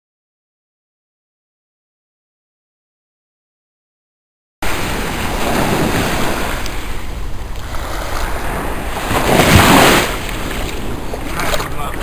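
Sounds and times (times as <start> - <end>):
small waves breaking on sand: 4.6 - 12.0
wind buffeting microphone: 4.6 - 12.0.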